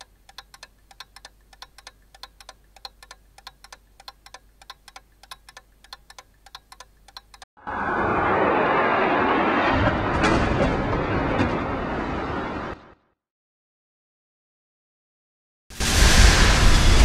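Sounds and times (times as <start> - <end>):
quiet regular ticking: 0.0 - 7.5.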